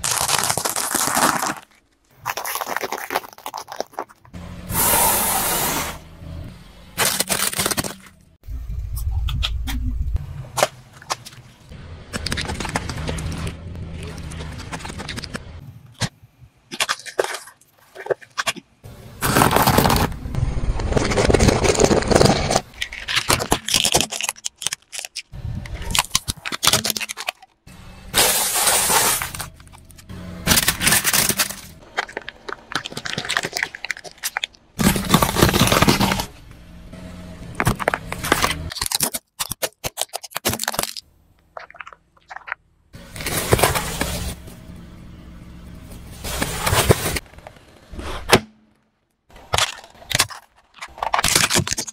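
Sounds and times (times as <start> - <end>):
tyre crushing plastic trays and fruit: 0.0 - 4.3, 7.0 - 8.2, 16.7 - 20.2, 20.9 - 27.6, 28.2 - 36.3, 37.5 - 41.0, 41.6 - 44.4, 49.3 - 51.9.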